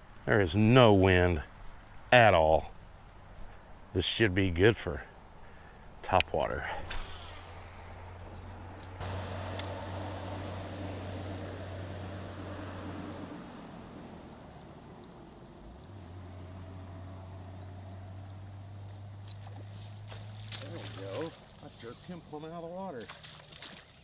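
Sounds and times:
high-pitched insect chorus: 0.0 - 24.0
low hum: 6.6 - 20.9.

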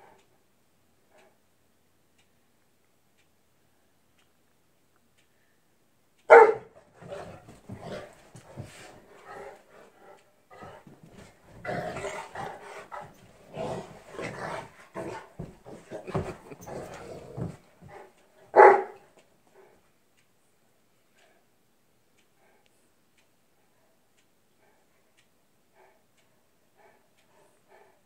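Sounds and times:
dog barking: 6.3 - 6.7, 18.5 - 19.0
dogs scuffling: 6.4 - 9.9, 10.5 - 18.9
dogs growling: 6.5 - 19.0.

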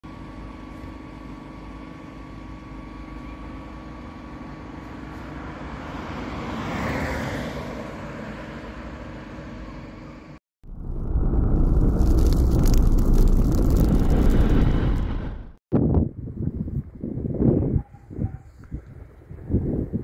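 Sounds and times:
low traffic rumble: 7.8 - 17.4.

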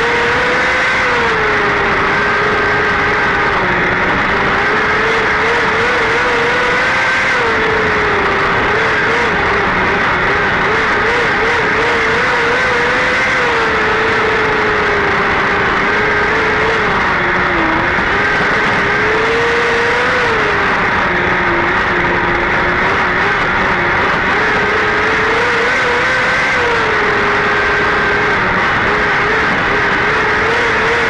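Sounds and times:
race car engine running hard: 0.0 - 31.0.

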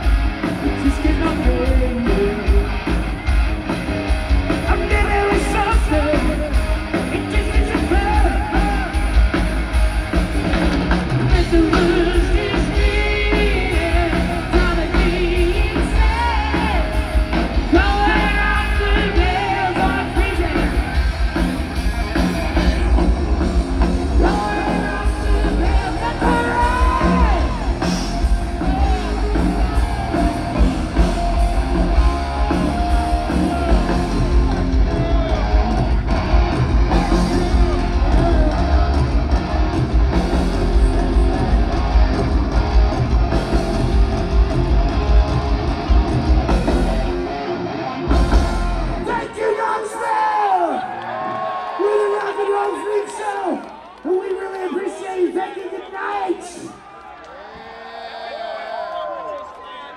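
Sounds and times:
bass guitar: 0.0 - 49.2
electric guitars: 0.0 - 49.4
drums: 0.0 - 56.9
person singing lead vocal: 0.6 - 2.8, 4.7 - 8.9, 11.3 - 17.0, 17.6 - 20.8, 24.1 - 30.2, 36.9 - 39.2.

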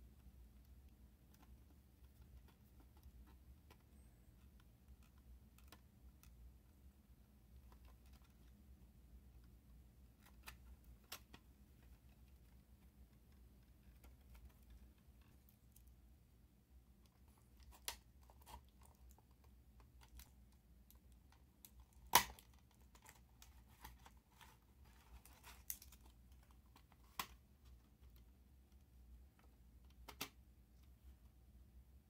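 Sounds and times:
small plastic clicks and taps: 29.4 - 30.9.

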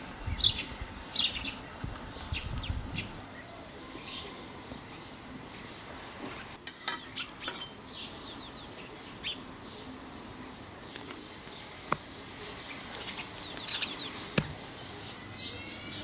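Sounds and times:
small birds chirping: 0.0 - 16.0
kitchenware clinking: 6.6 - 7.8.

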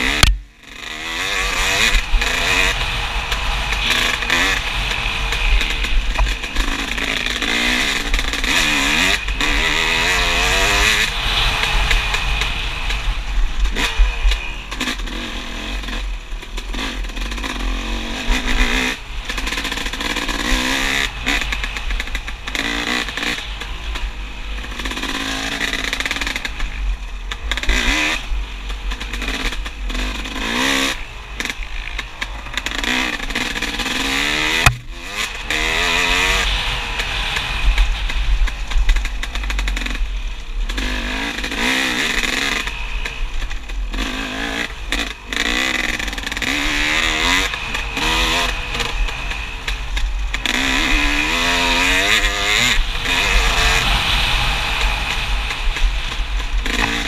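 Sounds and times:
dirt bike engine revving: 0.0 - 57.0
wind rumble on microphone: 34.5 - 57.0.

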